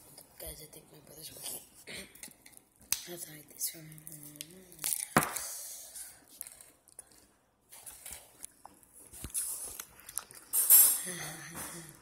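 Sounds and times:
chewing: 6.3s - 10.6s.

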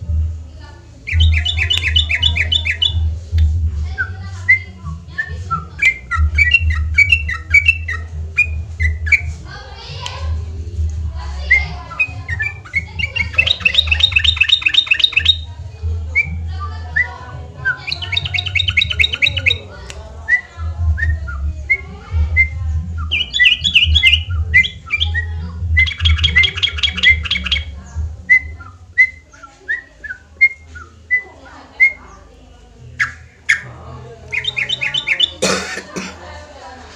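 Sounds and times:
bird chattering song: 1.0s - 3.1s, 4.0s - 10.2s, 11.3s - 15.6s, 17.0s - 31.2s, 32.9s - 35.6s.

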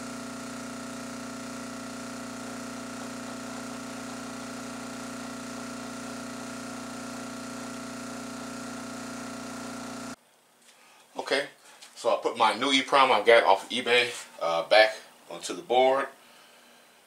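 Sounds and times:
electric blower motor humming: 0.0s - 10.2s.

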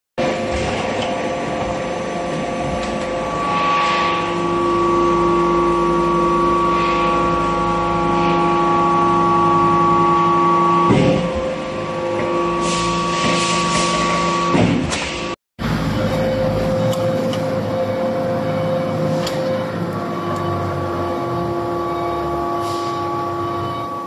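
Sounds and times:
hydraulic press whine: 0.2s - 24.0s.

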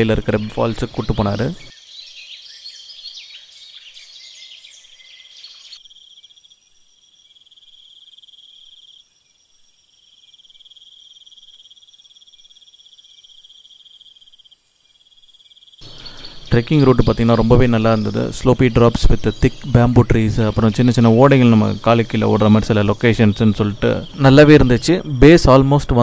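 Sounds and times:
high-pitched insect drone: 5.7s - 26.0s
rising and falling chirps: 15.8s - 26.0s.

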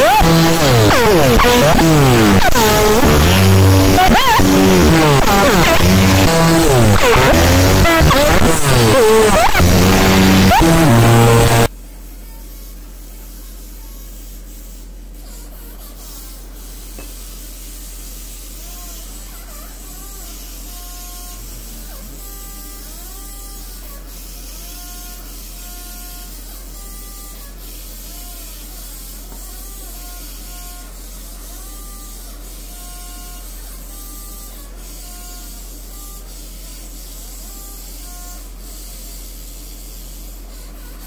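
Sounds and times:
laser scanner whining: 0.0s - 11.7s.

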